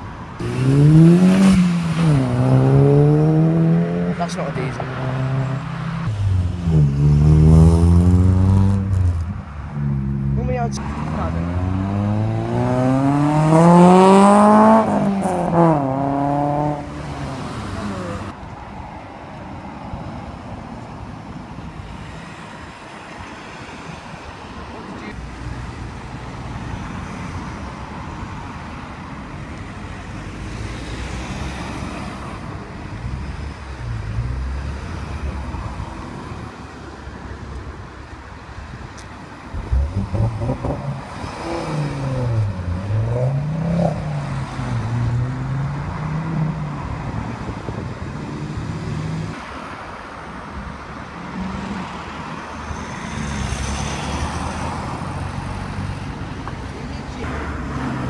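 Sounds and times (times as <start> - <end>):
cars driving past: 0.0 - 58.0
car engine revving: 0.4 - 18.4, 39.6 - 47.1.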